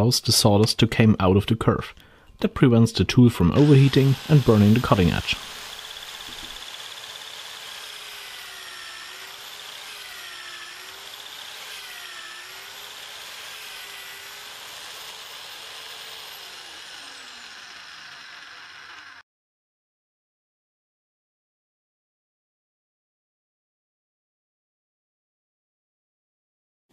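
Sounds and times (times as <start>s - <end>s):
hole saw cutting plywood: 3.4s - 19.2s
drill motor whir: 3.5s - 19.2s.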